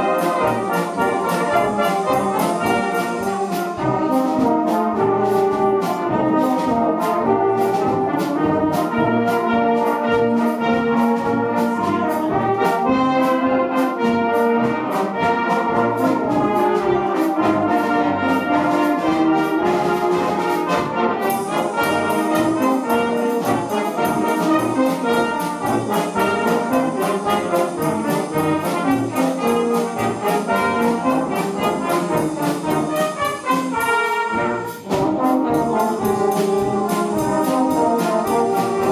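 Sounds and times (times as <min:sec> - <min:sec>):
brass band playing: 0:00.0 - 0:38.9
drum kit beat: 0:00.0 - 0:38.9.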